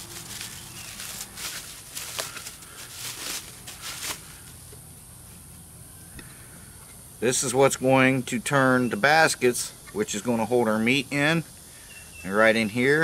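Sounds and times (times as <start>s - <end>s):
bubble wrap crinkling: 0.0s - 4.6s.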